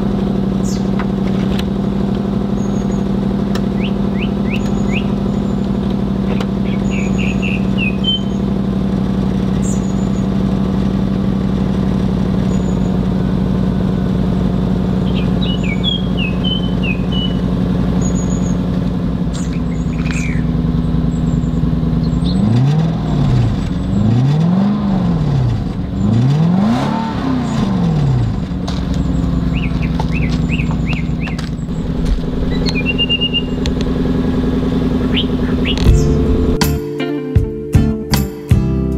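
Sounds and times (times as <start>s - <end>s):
car engine idling: 0.0s - 36.8s
car engine revving: 0.0s - 36.8s.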